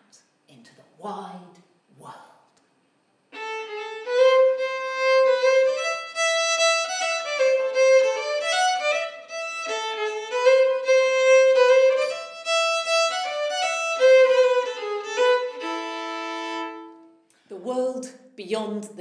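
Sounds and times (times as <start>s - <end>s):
solo violin melody: 3.3s - 17.2s.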